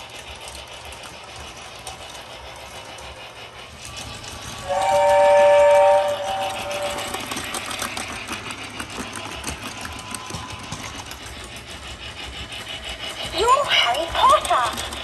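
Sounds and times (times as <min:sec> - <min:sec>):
toy train motor whirring: 0:00.0 - 0:15.0
toy train whistle: 0:04.4 - 0:07.9, 0:09.2 - 0:11.0.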